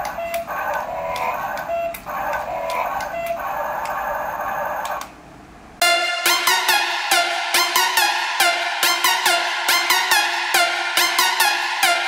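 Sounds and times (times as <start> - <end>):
electronic dance music: 5.8 - 12.0.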